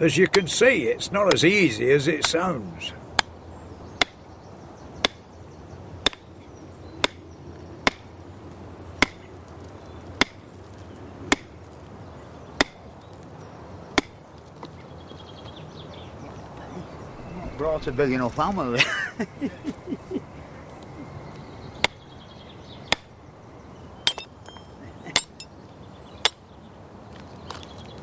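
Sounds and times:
hammer striking iron wedges: 7.8s - 8.0s, 24.1s - 25.5s.

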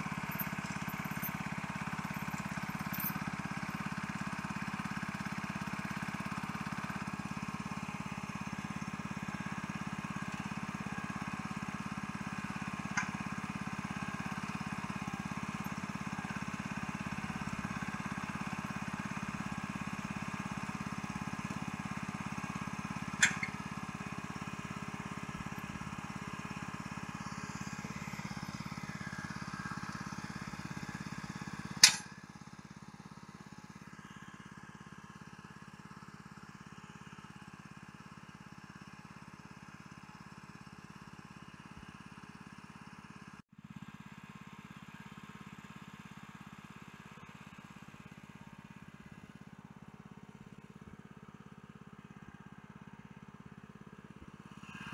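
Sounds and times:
small engine running: 0.0s - 54.9s
sharp metal clank: 31.8s - 32.1s.

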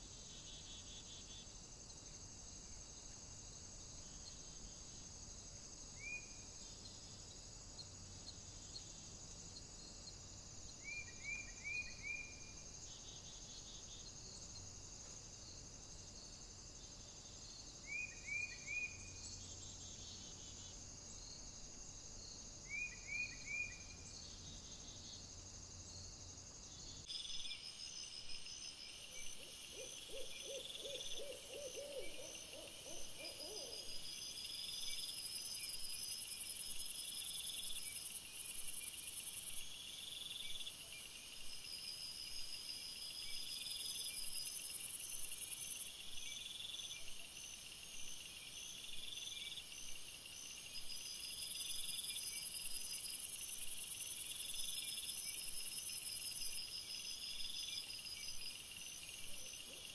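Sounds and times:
crickets chirping: 0.0s - 59.9s
owl-like hooting calls: 29.7s - 34.0s.

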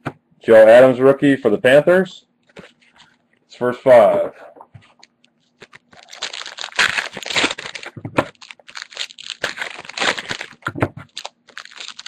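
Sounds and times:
foil wrappers crinkling and tearing: 5.4s - 12.0s.

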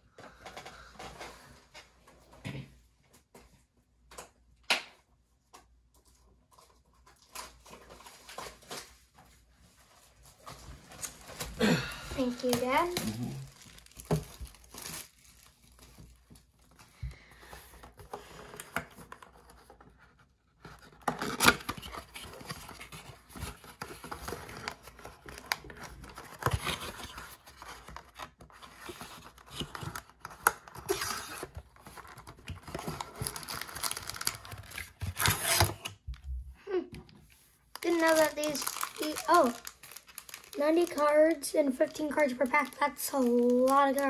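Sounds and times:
foil packs crinkling: 10.2s - 16.8s, 21.2s - 35.8s, 37.7s - 44.0s
cardboard box ripping: 32.7s - 35.9s.

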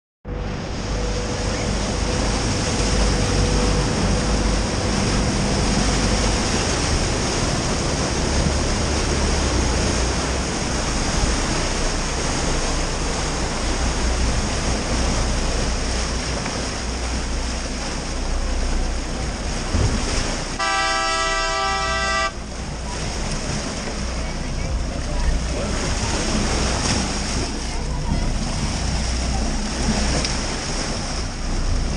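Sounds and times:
boat engine rumble: 0.2s - 31.9s
wind and water rushing: 0.3s - 31.9s
fog horn blast: 20.6s - 22.5s.

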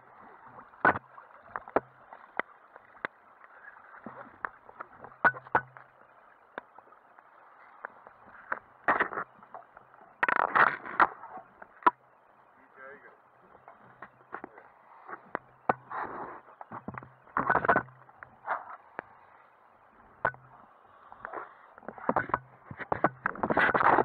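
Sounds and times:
muffled water splashing: 0.0s - 24.0s
irregular knocks and clicks: 4.0s - 5.9s, 13.7s - 15.9s, 16.7s - 18.3s, 20.2s - 20.5s, 21.8s - 24.0s.

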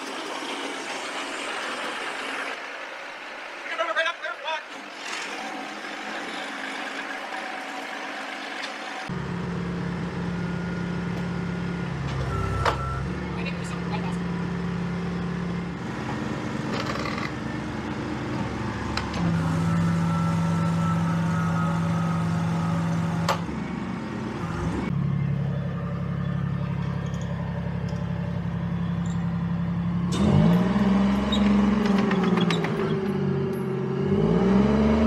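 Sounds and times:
diesel engine running: 9.0s - 35.0s.

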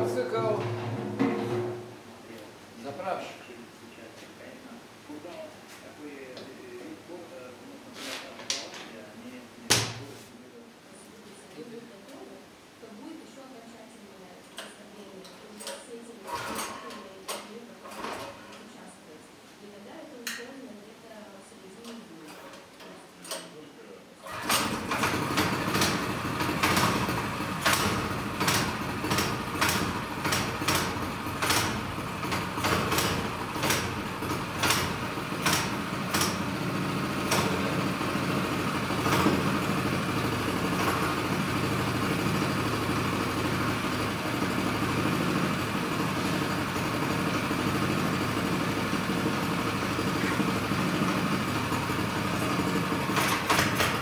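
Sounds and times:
small motorcycle engine running: 24.3s - 54.0s.

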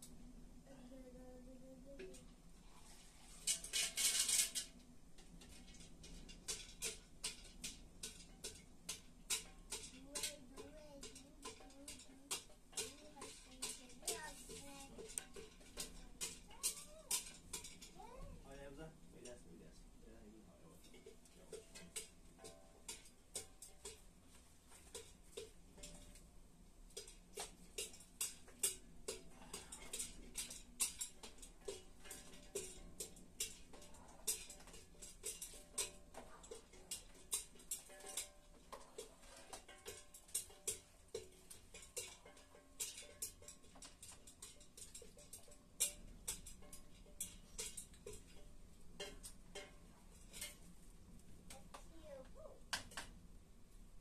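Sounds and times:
spoon knocking in a steel pot: 6.3s - 17.9s.

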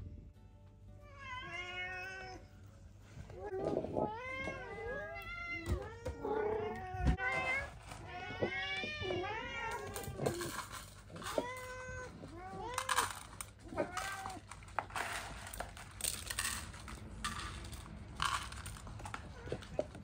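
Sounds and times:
cats meowing: 1.0s - 2.5s, 3.1s - 14.7s, 19.0s - 20.0s.

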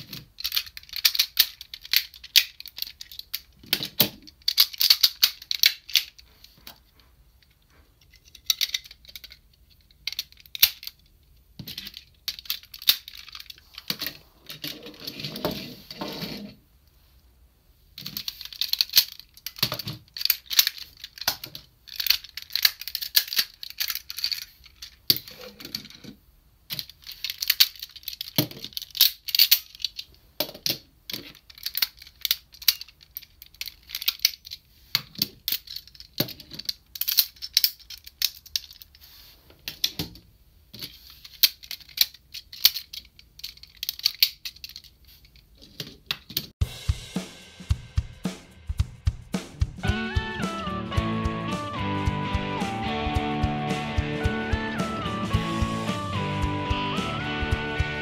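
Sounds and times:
plastic toy parts clicking: 0.0s - 15.6s, 18.0s - 39.0s, 39.6s - 46.6s.

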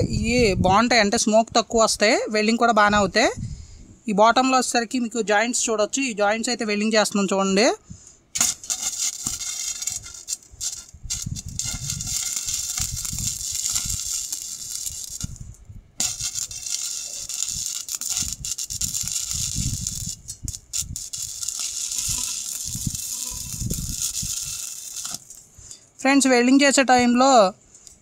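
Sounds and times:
welding arc crackling hiss: 8.3s - 25.6s.

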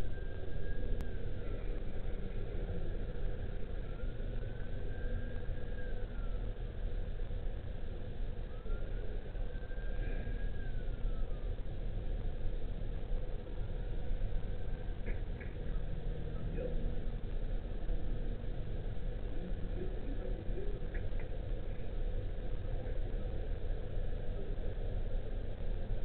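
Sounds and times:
faint whistling tone: 0.0s - 1.2s, 3.4s - 6.5s, 8.4s - 11.6s
low outdoor rumble and hiss: 0.0s - 26.0s.

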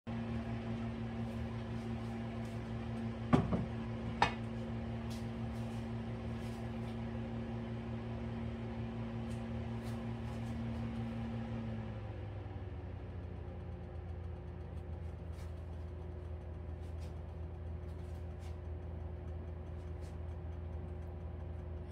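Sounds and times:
electrical hum: 0.1s - 21.9s.

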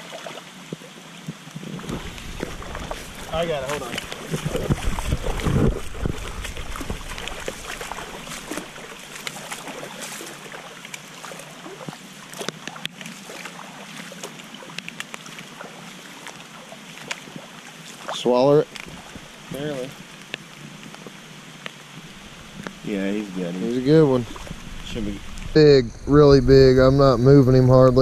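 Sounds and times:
creek water trickling: 0.0s - 27.9s
low rumble: 1.8s - 9.1s, 24.0s - 28.0s.

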